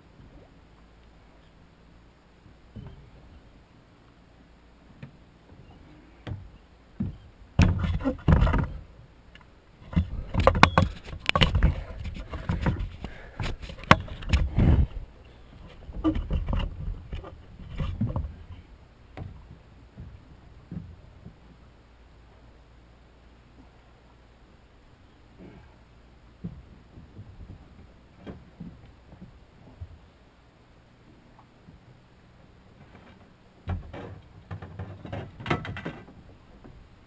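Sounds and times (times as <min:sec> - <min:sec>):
clicks and thumps: 0:06.2 - 0:08.8, 0:09.8 - 0:15.0, 0:15.6 - 0:18.6.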